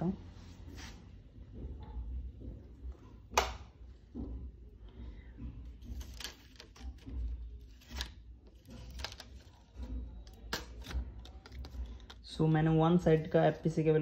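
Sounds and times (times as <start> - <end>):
ribbon cables rustling: 5.8 - 12.4.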